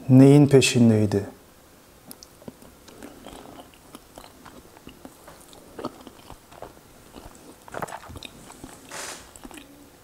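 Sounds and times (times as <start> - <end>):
person chewing: 2.0 - 10.0.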